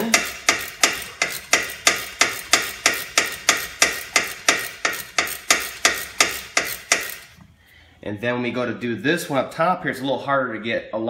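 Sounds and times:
ratchet wrench clicking: 0:00.0 - 0:07.4.

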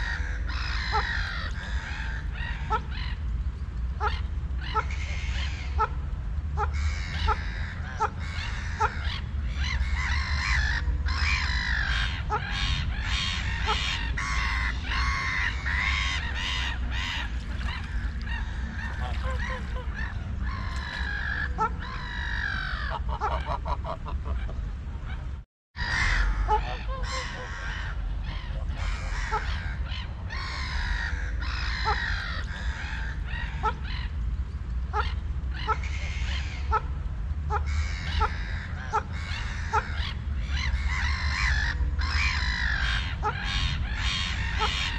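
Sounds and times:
steady low rumble: 0:00.0 - 0:44.9
waterfowl quacking and honking: 0:04.0 - 0:24.6, 0:25.8 - 0:34.2, 0:34.9 - 0:44.9.

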